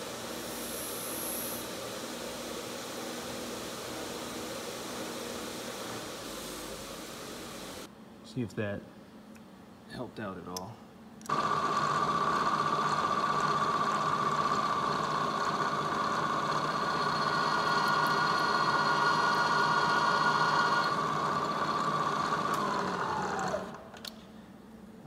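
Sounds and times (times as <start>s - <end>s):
drill bit cutting aluminum: 11.3s - 22.9s
milling spindle whine: 11.3s - 23.8s.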